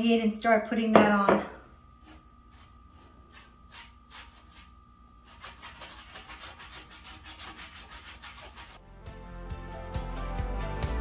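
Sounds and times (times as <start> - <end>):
cloth rubbing wax on wood: 2.0 - 8.8
background music: 8.8 - 11.0.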